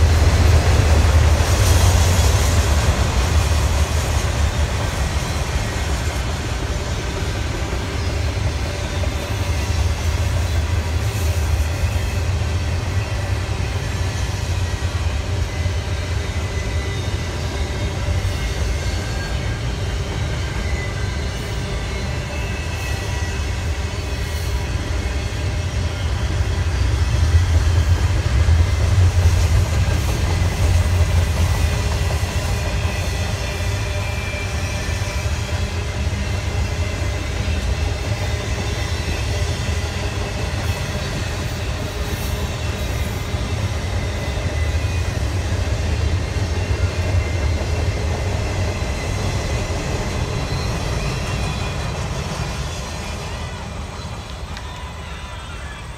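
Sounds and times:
train wheels rumbling on track: 0.0 - 55.9
high wheel squeal: 0.6 - 28.0, 29.3 - 55.9.

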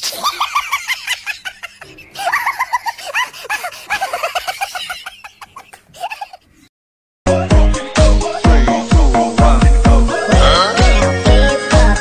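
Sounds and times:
music with a strong beat: 7.3 - 12.0.

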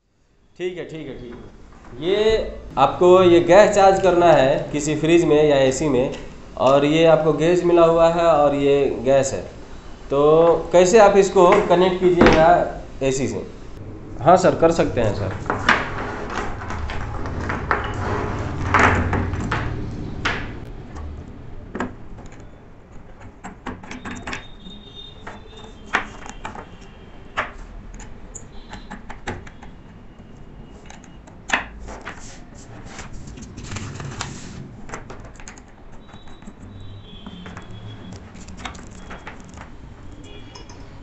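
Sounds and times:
rustling handling noise: 31.6 - 36.7.

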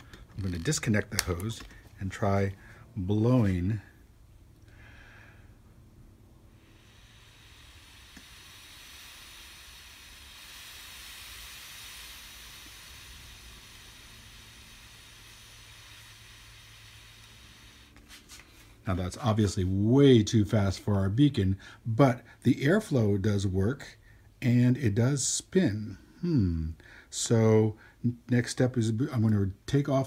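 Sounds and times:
breath hissing through tubing: 0.0 - 2.9, 6.4 - 18.8.

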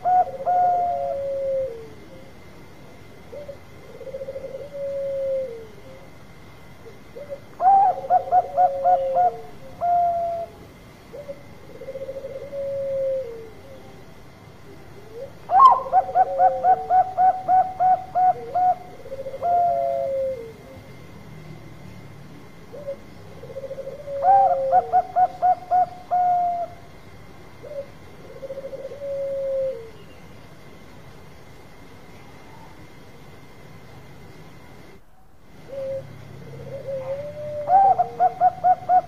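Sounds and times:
dove cooing: 0.0 - 2.4, 3.2 - 6.1, 6.8 - 21.0, 22.6 - 30.1, 35.5 - 39.0.

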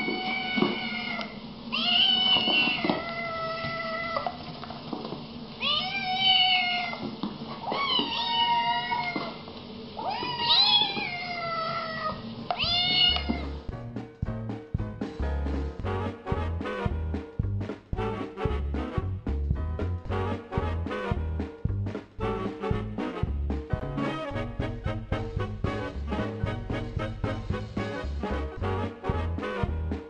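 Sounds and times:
kittens meowing: 0.0 - 4.3, 5.6 - 7.0, 7.6 - 9.4, 10.0 - 13.6
swing music: 12.7 - 30.0.

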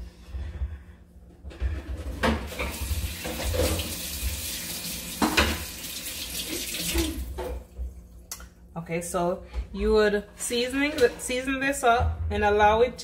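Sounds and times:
tap water running into sink: 2.5 - 7.7
knocks in sink: 5.2 - 5.7.

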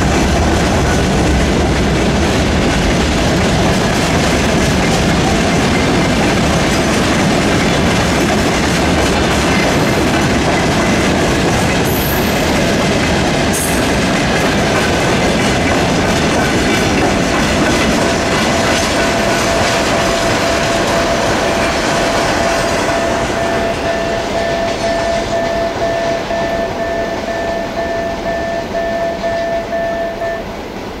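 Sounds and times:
freight train wheels clattering: 0.0 - 31.0
steady high tone: 17.6 - 30.6.

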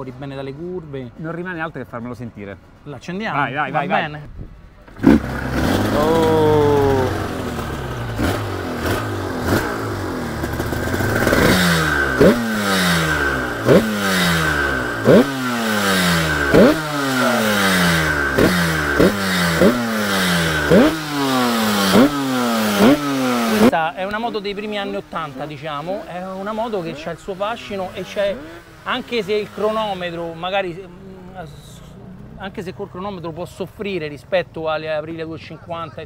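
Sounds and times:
two-stroke motorcycle engine revving: 4.9 - 23.8, 24.8 - 32.8.

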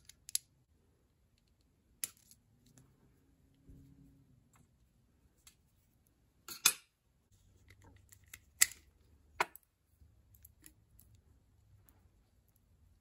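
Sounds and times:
small metal parts clicking: 0.0 - 0.5.

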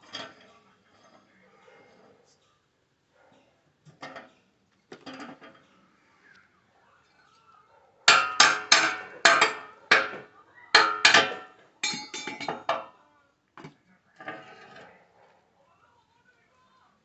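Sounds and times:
ringing metallic clanks: 8.1 - 12.9
scrap metal clinking: 8.1 - 12.9.

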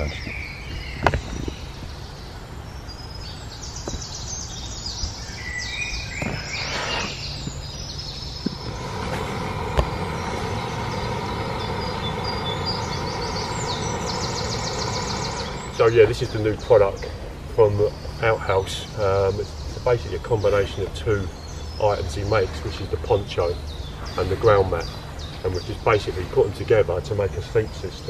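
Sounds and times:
songbirds chirping: 0.0 - 28.0
gas stove hissing: 6.2 - 17.3.

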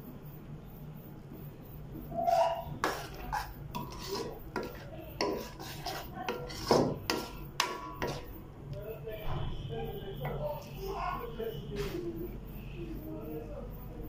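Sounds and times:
metal spoon scraping metal pan: 2.2 - 8.4.

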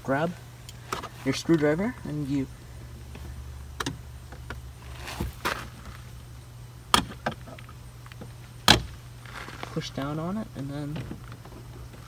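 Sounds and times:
steady low hum: 0.0 - 12.0
handling rustle: 4.8 - 6.2, 7.4 - 10.2.

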